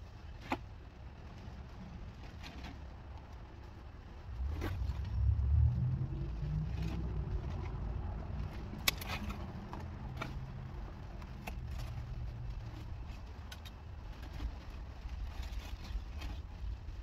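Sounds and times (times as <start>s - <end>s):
vehicle engine running: 3.5s - 15.6s
roofing scraps clicking and rustling: 8.4s - 17.0s.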